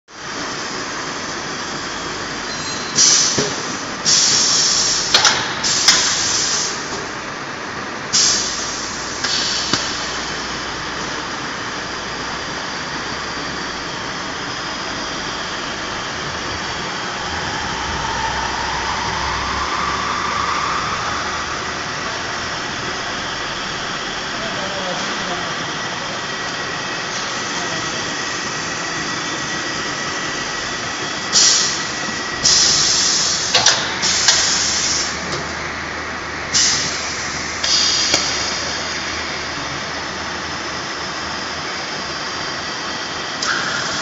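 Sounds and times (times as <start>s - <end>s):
faint whine: 13.8s - 24.9s.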